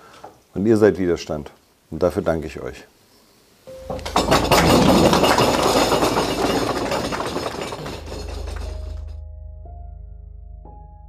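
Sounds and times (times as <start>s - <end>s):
audience clapping: 4.3s - 7.2s
low pulsing music: 8.7s - 11.0s.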